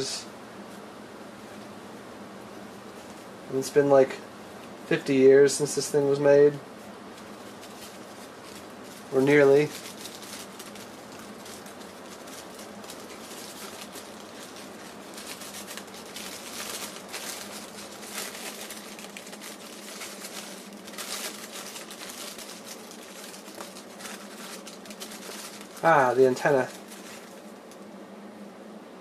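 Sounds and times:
paper rustling and crinkling: 6.8s - 27.9s.

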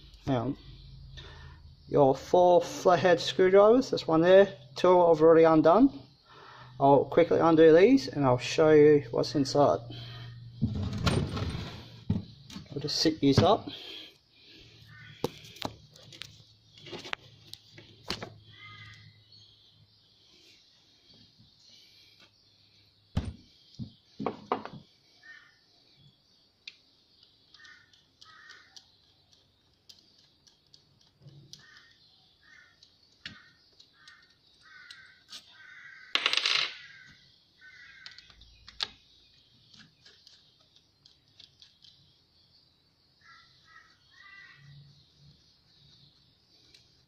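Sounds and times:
bird calls: 12.1s - 47.0s.

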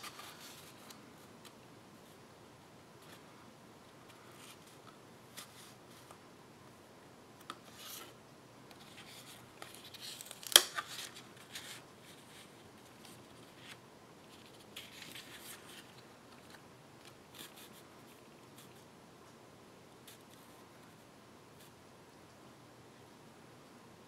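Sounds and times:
paper snap: 10.2s - 11.1s.

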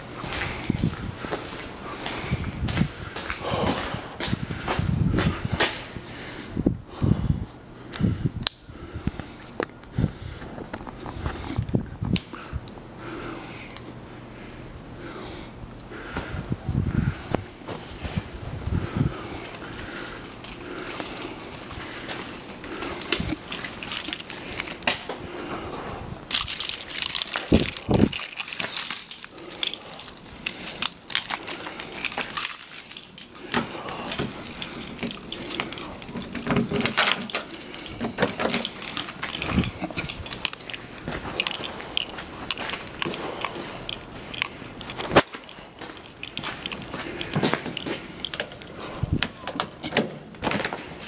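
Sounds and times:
keys jingling: 19.1s - 25.1s, 26.2s - 51.0s.

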